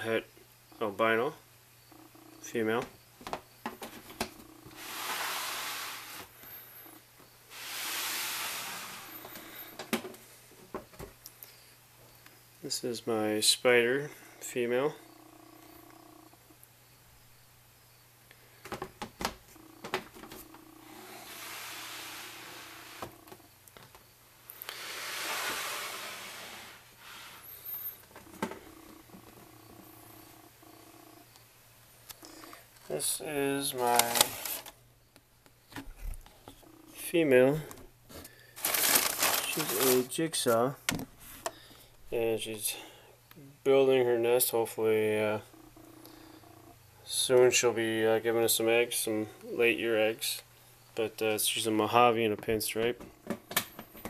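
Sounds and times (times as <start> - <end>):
plastic tubs sliding on shelves: 3.9 - 6.4, 7.5 - 10.2, 19.8 - 23.4, 24.6 - 28.7, 33.9 - 34.7, 38.1 - 40.5.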